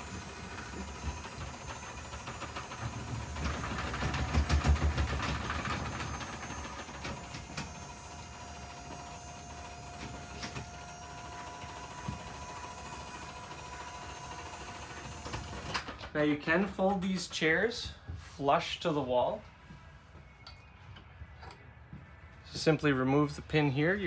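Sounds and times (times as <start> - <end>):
electric motor drone with rattles: 0.0 - 15.9
thin motor whine: 0.0 - 15.9.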